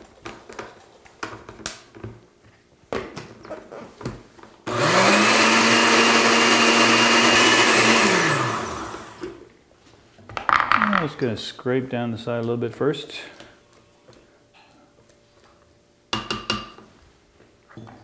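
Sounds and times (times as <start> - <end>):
blender motor running: 4.7 - 9.4.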